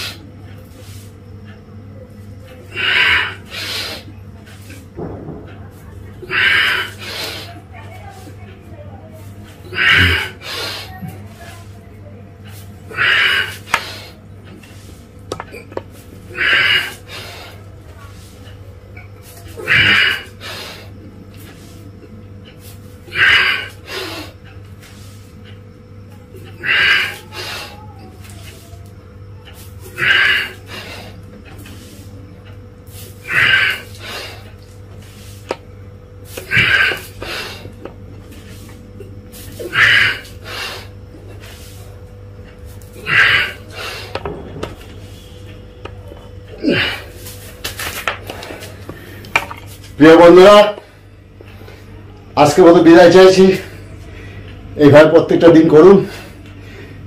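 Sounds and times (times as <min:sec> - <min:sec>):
steady low hum: 0:00.0 - 0:57.0
man breathing forcefully: 0:02.6 - 0:04.1, 0:06.2 - 0:07.6, 0:09.6 - 0:11.1, 0:12.9 - 0:14.2, 0:16.3 - 0:17.7, 0:19.6 - 0:21.0, 0:22.8 - 0:25.3, 0:26.4 - 0:27.9, 0:29.8 - 0:31.6, 0:33.1 - 0:35.6, 0:36.3 - 0:37.9, 0:39.4 - 0:41.7, 0:42.9 - 0:44.4
man's sharp hissing exhalations: 0:39.3 - 0:41.7.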